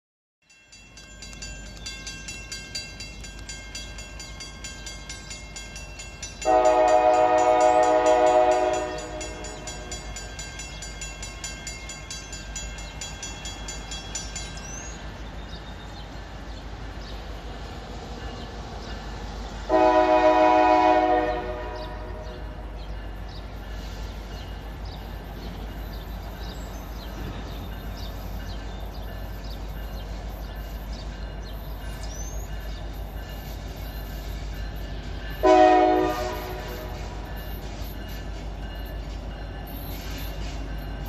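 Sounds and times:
crossing warning bell ringing: 0.4 - 41.0
locomotive air horn blasts: 6.4 - 9.9, 19.7 - 22.4, 35.4 - 37.2.

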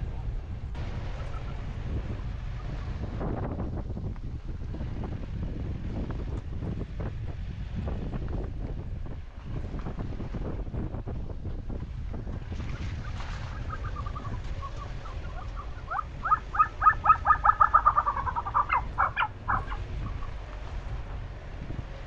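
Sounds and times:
snowcock calling: 13.0 - 20.5.

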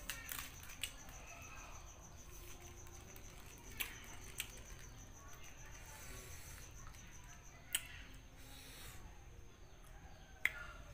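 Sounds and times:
cabbage leaves snapping: 0.0 - 1.2.

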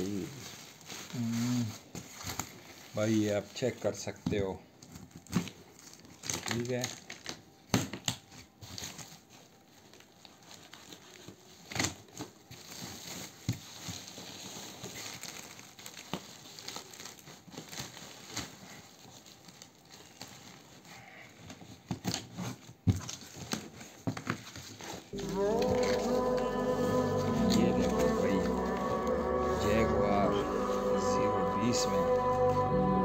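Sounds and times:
plastic sack and box rustling: 0.0 - 25.2.

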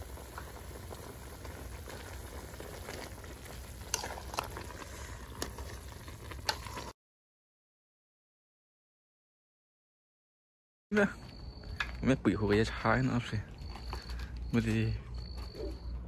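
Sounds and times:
pot bubbling at a boil: 0.0 - 7.0.

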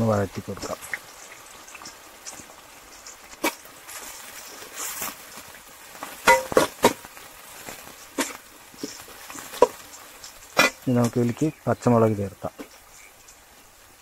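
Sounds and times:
onions sizzling in oil: 0.0 - 14.0
spoon clinking against pot: 6.3 - 6.7.

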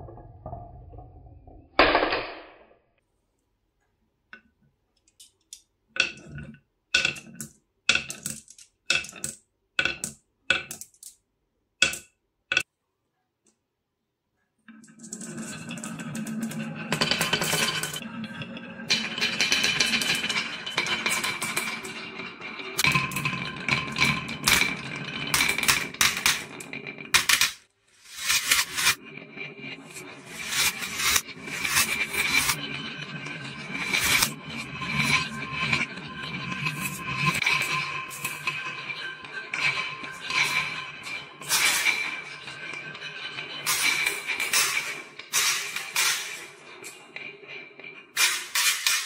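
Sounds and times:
marbles clacking on wood: 5.0 - 11.2, 11.8 - 12.7
marbles rolling on wooden track: 5.2 - 11.2, 14.7 - 49.0.

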